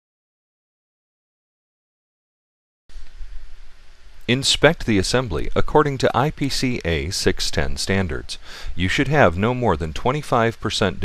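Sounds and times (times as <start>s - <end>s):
low hum with hiss: 2.9s - 11.0s.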